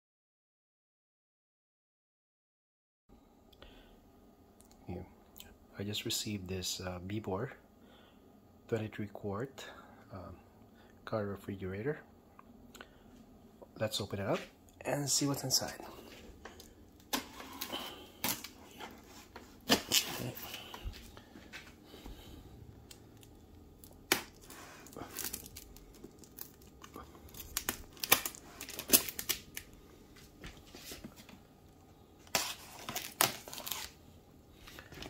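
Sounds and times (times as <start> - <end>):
plastic wrap and cardboard crinkling: 15.6 - 21.8, 22.9 - 31.4, 32.2 - 35.0
packing tape tearing: 17.0 - 20.7, 23.2 - 29.7, 32.2 - 34.0.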